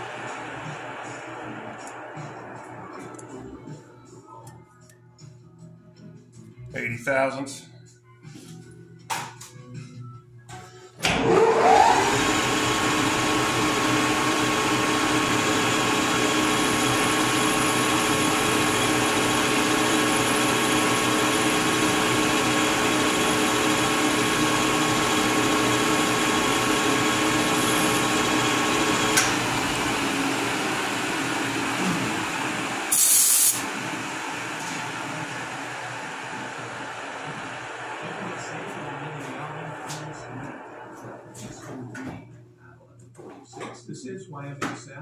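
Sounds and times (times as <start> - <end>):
metal lathe whining: 0.0 - 3.8, 11.0 - 41.5.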